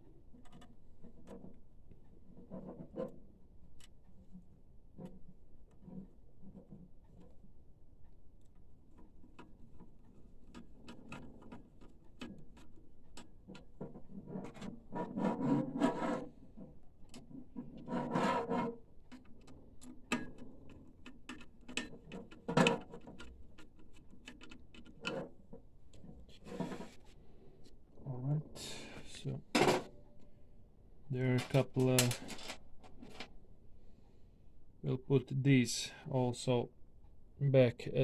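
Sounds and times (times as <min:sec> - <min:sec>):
small clicks of screws and parts: 0:00.2 - 0:27.8, 0:31.4 - 0:33.4
rubbing scrapes: 0:26.2 - 0:27.2.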